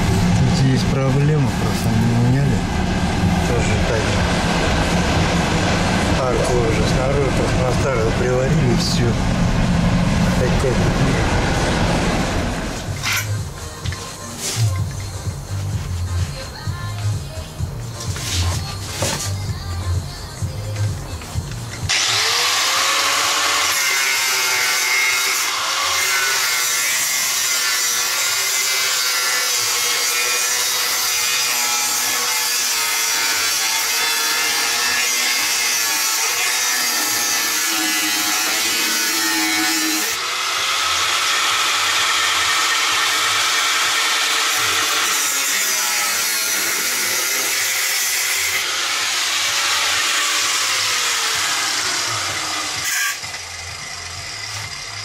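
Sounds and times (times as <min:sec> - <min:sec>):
angle grinder cutting sheet metal: 0:00.0 - 0:55.0.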